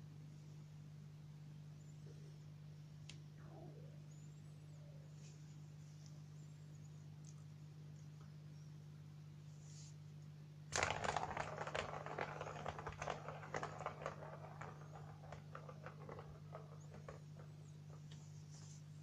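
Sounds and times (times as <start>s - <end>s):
ball clattering around plastic track: 10.7s - 18.4s.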